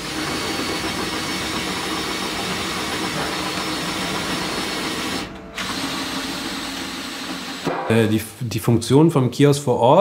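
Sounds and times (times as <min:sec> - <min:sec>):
motor whirring: 0:00.0 - 0:07.6.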